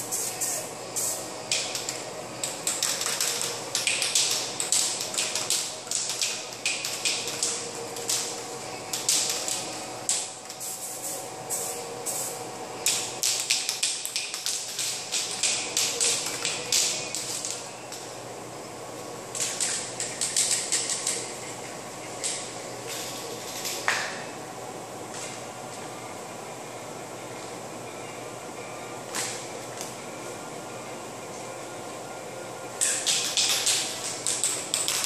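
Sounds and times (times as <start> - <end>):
spray paint can hissing bursts: 0.1 - 1.7, 10.6 - 16.2.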